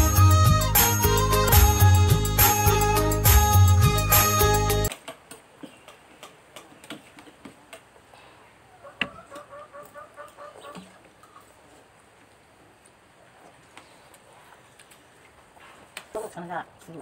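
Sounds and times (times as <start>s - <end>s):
indian film music: 0.0s - 4.9s.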